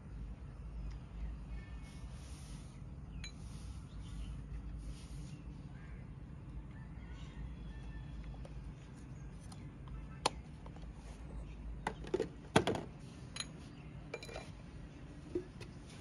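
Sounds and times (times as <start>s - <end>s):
low background hum: 0.0s - 16.0s
small containers clinking: 13.3s - 14.6s.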